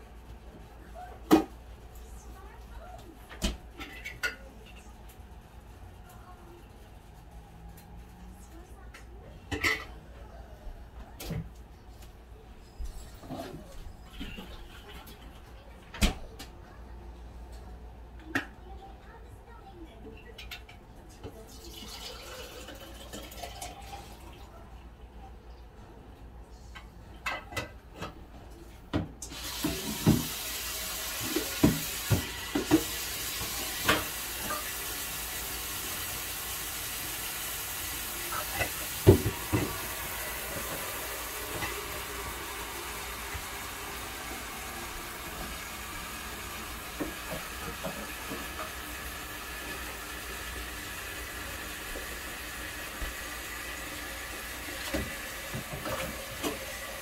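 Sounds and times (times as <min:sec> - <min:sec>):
steam hissing from pot: 0:29.2 - 0:57.0.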